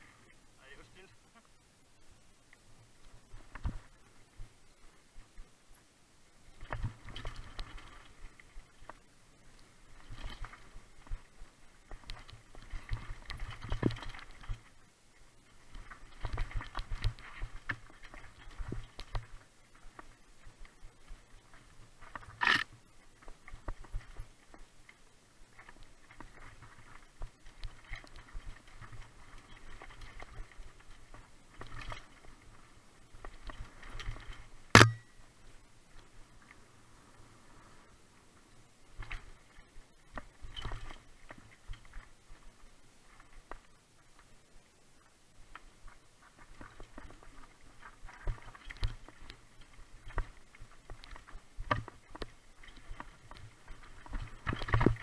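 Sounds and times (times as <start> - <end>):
bike rattling over rocks: 6.6 - 9.0, 9.7 - 14.8, 15.4 - 24.6, 25.5 - 35.1, 39.0 - 42.2, 46.2 - 55.0
loud sharp ringing knock: 34.8 - 35.1.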